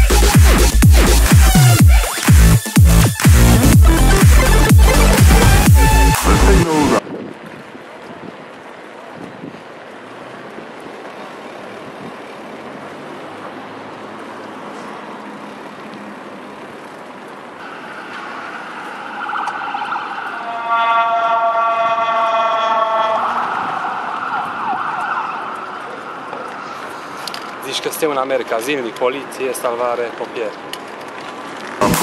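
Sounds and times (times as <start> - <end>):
street traffic noise: 0.0 - 32.0
emergency vehicle siren: 17.6 - 27.6.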